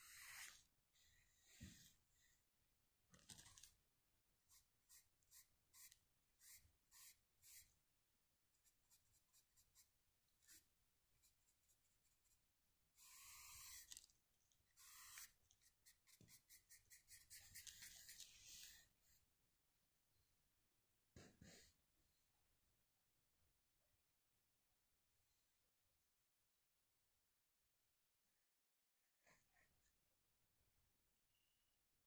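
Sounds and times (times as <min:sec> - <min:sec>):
paintbrush scratching on paper: 0:00.0 - 0:00.6, 0:04.5 - 0:07.8, 0:08.6 - 0:14.1, 0:14.7 - 0:19.2.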